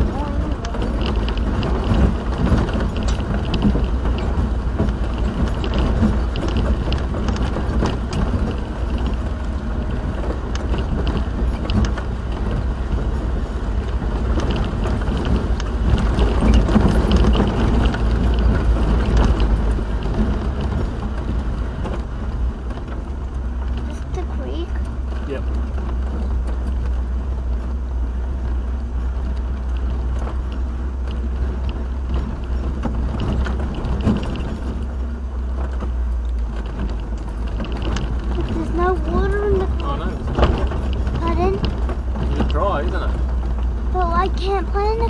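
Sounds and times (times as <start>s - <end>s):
vehicle road and engine rumble: 0.0s - 45.0s.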